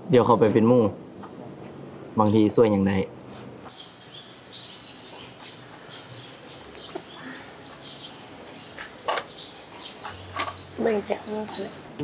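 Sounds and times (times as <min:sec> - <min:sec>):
faint bird chirps: 0:03.7 - 0:12.0.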